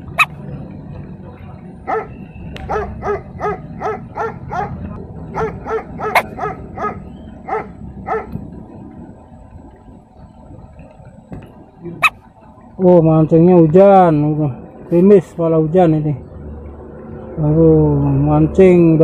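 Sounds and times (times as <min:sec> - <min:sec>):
dog barking: 0:01.9 - 0:02.1, 0:02.7 - 0:08.4.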